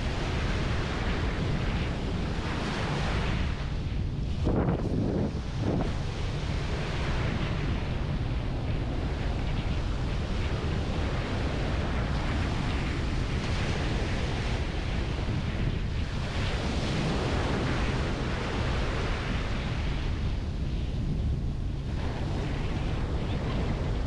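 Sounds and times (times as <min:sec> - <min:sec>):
wind buffeting microphone: 0:00.0 - 0:24.0.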